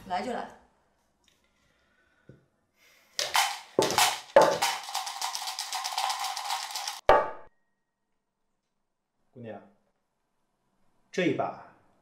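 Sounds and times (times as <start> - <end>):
dice rattling in a cup: 3.2 - 7.0.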